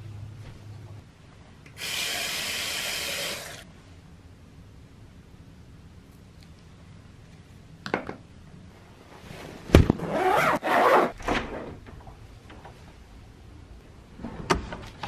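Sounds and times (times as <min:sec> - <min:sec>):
fabric bag thump: 0:09.6 - 0:10.4
zipper rasping: 0:10.0 - 0:11.2.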